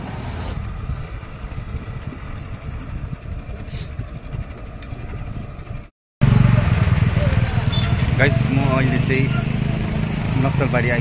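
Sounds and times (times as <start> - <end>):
wind buffeting microphone: 0.0 - 5.9.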